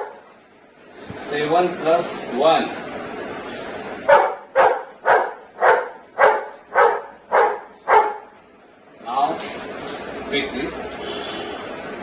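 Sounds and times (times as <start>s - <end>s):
dog barking: 0.0s - 0.2s, 4.1s - 8.3s.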